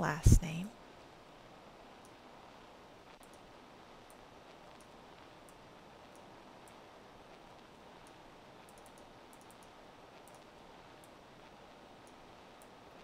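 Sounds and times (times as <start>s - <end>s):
steady low hiss: 0.0s - 13.0s
computer mouse clicks: 3.2s - 6.8s, 8.0s - 11.2s.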